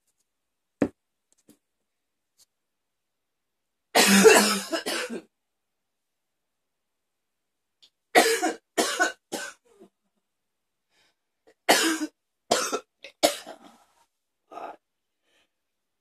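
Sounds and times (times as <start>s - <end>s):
woman coughing hard: 4.0s - 5.3s, 8.2s - 9.6s, 11.7s - 13.6s.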